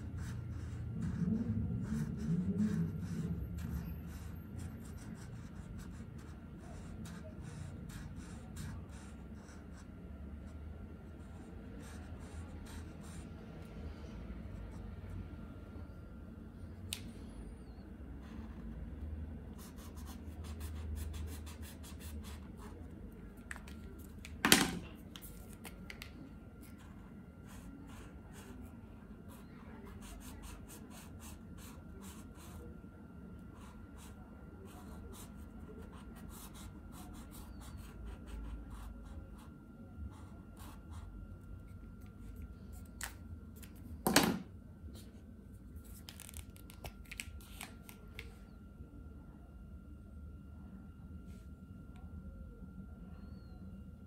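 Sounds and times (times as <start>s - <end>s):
marker scratching and tapping paper: 0.0s - 9.9s, 19.5s - 28.5s, 33.6s - 39.5s, 42.0s - 44.4s.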